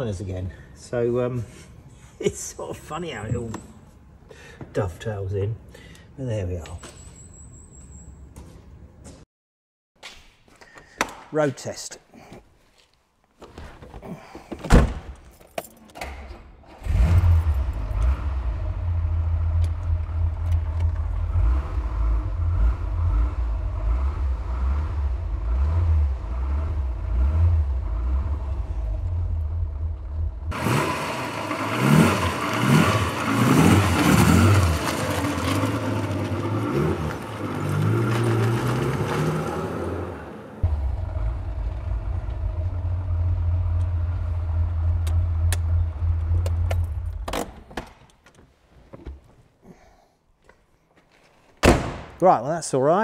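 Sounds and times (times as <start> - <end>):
car engine starting and idling: 16.0 - 47.6
car engine revving: 16.8 - 47.3.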